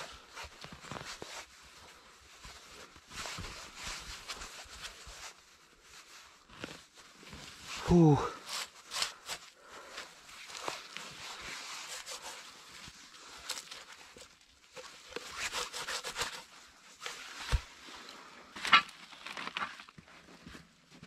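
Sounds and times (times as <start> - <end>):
hand scraping leaf litter: 6.0 - 20.0.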